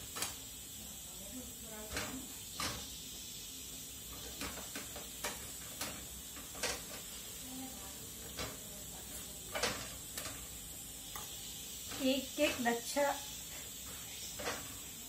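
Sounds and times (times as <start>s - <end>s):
frying hiss: 0.0s - 15.0s
spatula scraping a hot pan: 1.9s - 15.0s.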